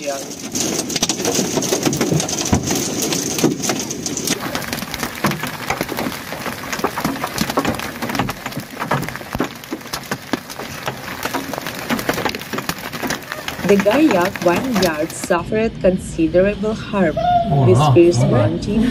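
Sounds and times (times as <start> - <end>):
hail hitting road and cars: 0.0 - 15.4
rush of falling hail: 0.0 - 15.4.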